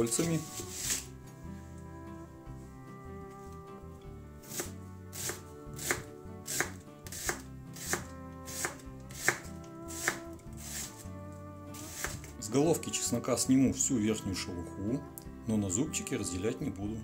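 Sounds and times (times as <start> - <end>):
knife slicing onion on wooden board: 4.4 - 11.1, 11.8 - 12.4.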